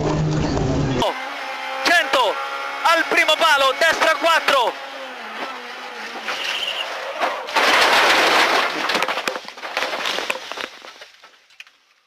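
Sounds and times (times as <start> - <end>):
car crash burst: 5.4 - 10.3
crackling and clattering: 6.1 - 12.0.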